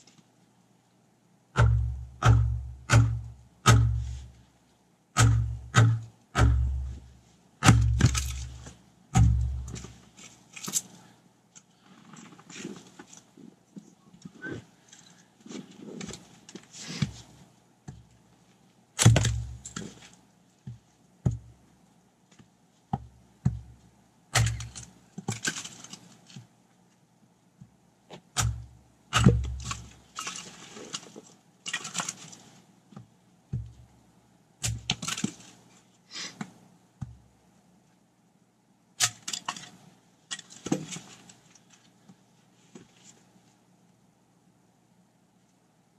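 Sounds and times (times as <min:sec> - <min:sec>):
axe chopping firewood: 0:01.6 - 0:04.3, 0:05.2 - 0:10.0, 0:19.0 - 0:20.1, 0:23.0 - 0:23.7, 0:24.3 - 0:26.0, 0:28.2 - 0:30.5, 0:33.5 - 0:33.8, 0:34.6 - 0:35.4.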